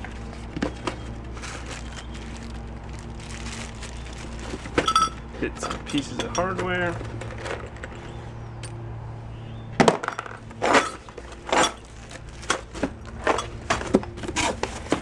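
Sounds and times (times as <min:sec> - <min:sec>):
metal hardware clinking: 0:04.8 - 0:08.8.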